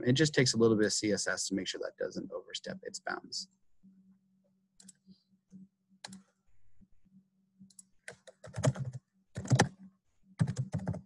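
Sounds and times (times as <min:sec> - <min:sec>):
keyboard and mouse clicks: 0:04.8 - 0:05.0, 0:06.0 - 0:06.3, 0:07.6 - 0:11.0.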